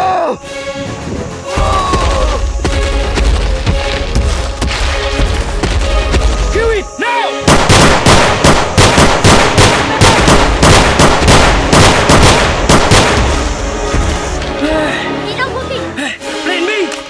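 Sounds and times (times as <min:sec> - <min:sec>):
rapid handgun fire: 0:07.5 - 0:13.4.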